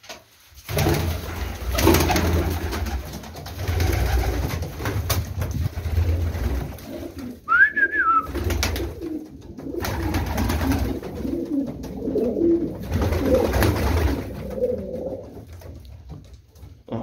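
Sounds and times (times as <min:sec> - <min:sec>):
pigeons cooing: 0:05.8 - 0:15.5.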